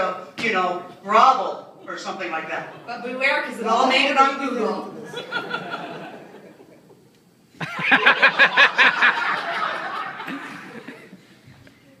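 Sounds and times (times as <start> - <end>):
loud laughter: 5.0 - 6.9, 7.6 - 11.2.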